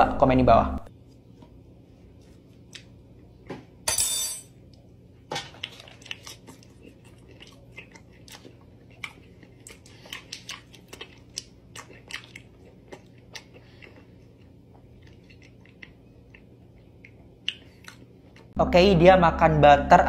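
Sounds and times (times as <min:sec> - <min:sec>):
faint low hum: 0:00.0 - 0:20.0
person chewing butter: 0:05.5 - 0:18.6.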